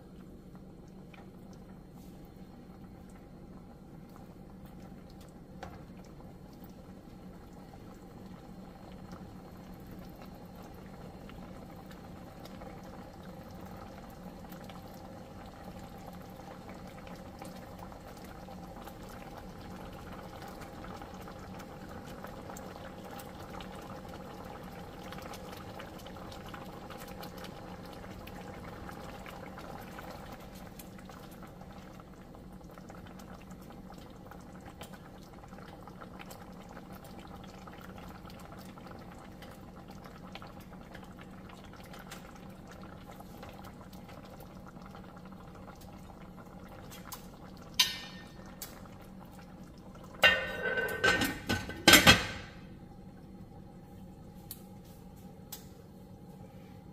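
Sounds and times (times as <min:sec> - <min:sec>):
curry bubbling in a skillet: 0:00.0 - 0:54.8
lid clattering onto a pan: 0:50.2 - 0:52.5.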